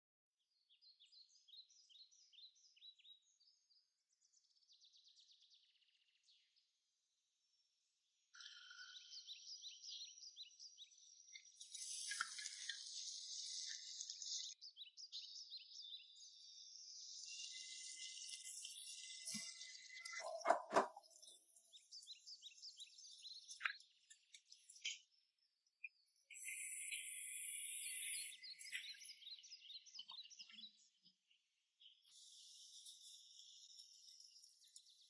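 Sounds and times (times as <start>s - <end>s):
faint quick chirps: 26.3s - 29.4s.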